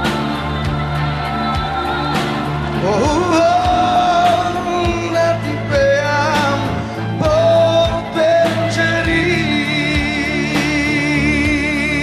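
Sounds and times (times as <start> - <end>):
backing band: 0.0 - 12.0
man singing pop song: 2.2 - 12.0.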